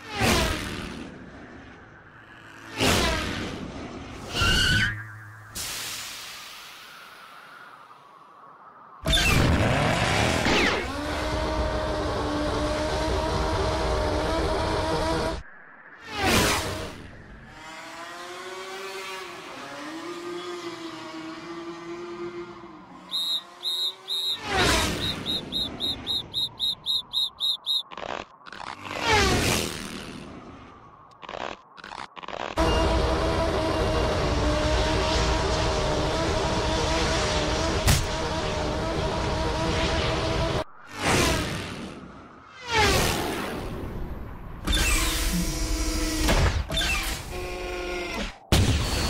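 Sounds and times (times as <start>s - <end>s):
rapid high cartoon chirps: 23.1s - 28.0s.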